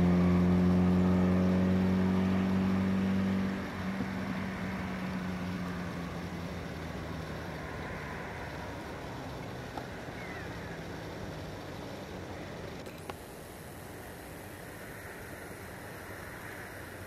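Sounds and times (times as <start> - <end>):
low motor hum: 0.0 - 17.0.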